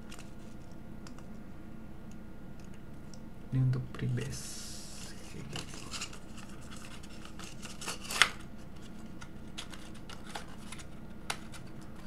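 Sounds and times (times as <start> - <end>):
plastic blister pack crinkling: 5.1 - 12.0.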